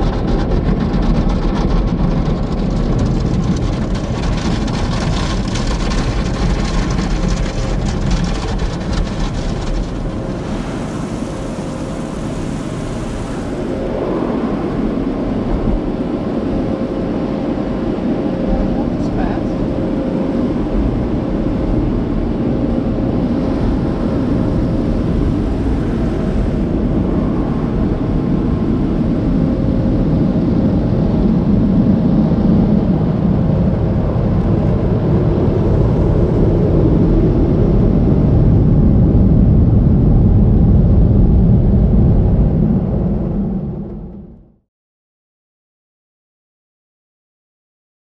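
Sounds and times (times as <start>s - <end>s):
car wash water spraying: 0.0s - 13.5s.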